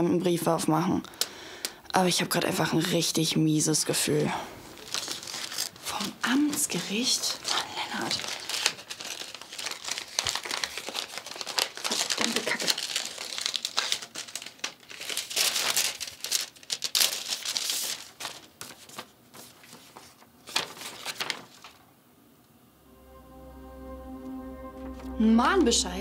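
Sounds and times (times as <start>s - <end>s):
paper crinkling and rustling: 4.7s - 21.9s
envelope tearing: 4.8s - 21.8s.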